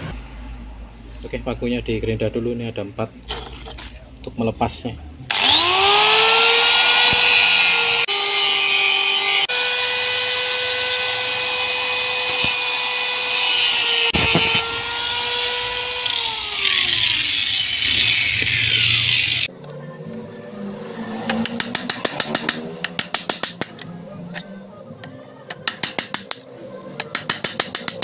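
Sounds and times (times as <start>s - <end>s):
angle grinder grinding metal: 5.3s - 19.5s.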